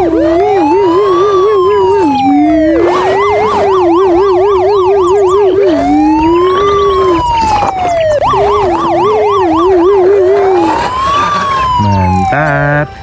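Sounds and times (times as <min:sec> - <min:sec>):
low warbling tone: 0:00.0 - 0:13.0
toy electronic siren wailing: 0:00.0 - 0:13.0.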